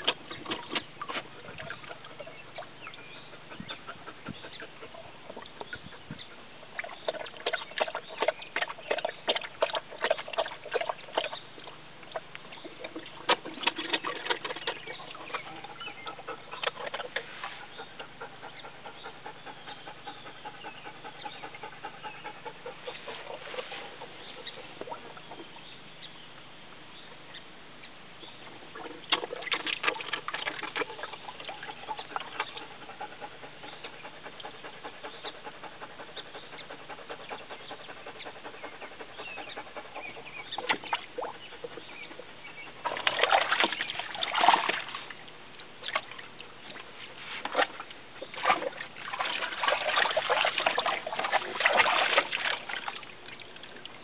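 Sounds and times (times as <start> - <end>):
dog splashing water in tub: 0.0 - 3.1, 6.7 - 18.2, 28.6 - 36.1, 36.8 - 54.0.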